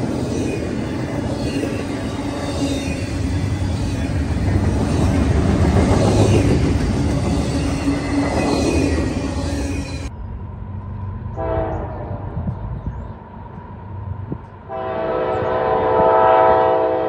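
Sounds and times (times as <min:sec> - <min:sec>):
train wheels rumbling on rails: 0:00.0 - 0:17.0
wheel squeal: 0:01.2 - 0:10.1
distant locomotive horn: 0:11.3 - 0:12.5, 0:14.7 - 0:17.0.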